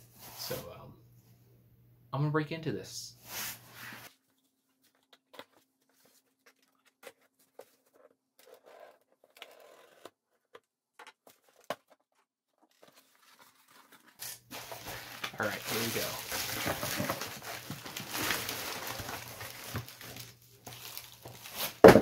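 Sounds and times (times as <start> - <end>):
tape tearing and rustling: 12.7 - 22.0.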